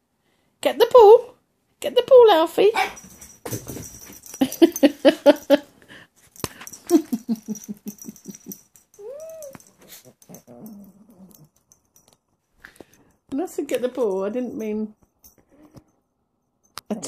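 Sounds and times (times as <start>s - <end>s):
puppy yelping whine: 9.0s - 11.4s
puppy growling: 9.0s - 11.6s.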